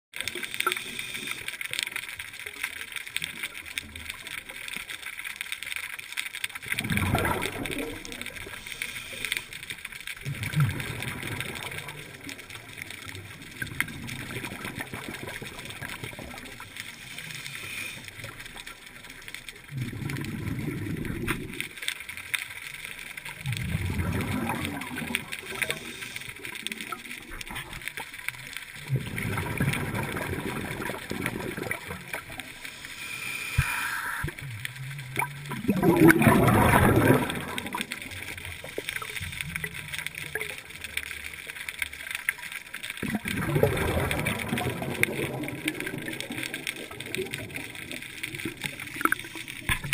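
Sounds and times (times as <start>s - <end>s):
faint crackling: 0.1s - 49.9s
rumble of exhaled bubbles: 6.4s - 49.9s
diver exhaling through regulator: 32.8s - 34.4s.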